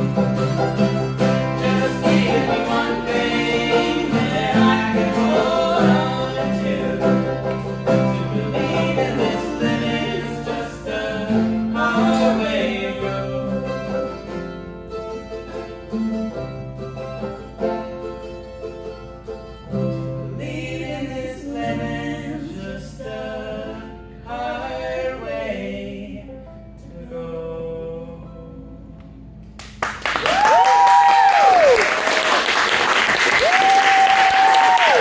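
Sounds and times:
acoustic guitar: 0:00.0 - 0:35.0
woman singing: 0:20.3 - 0:23.9
audience applause: 0:29.6 - 0:35.0
audience cheering: 0:30.0 - 0:35.0.

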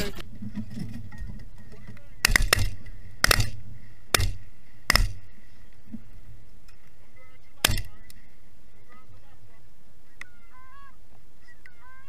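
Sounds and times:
shotgun shots: 0:02.2 - 0:05.3, 0:07.6 - 0:08.0.

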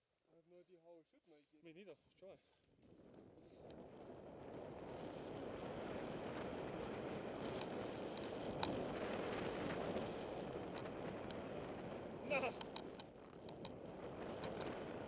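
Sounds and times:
wind on microphone: 0:02.8 - 0:15.0
bike clicks and rattles: 0:07.4 - 0:15.0.

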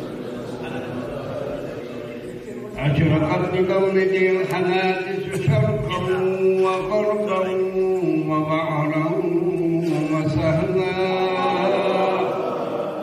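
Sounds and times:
men chanting unaccompanied: 0:02.8 - 0:13.0.

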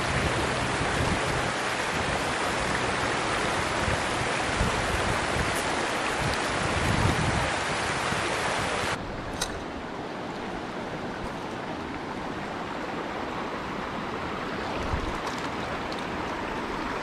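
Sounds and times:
creek water running over rocks: 0:00.0 - 0:17.0.

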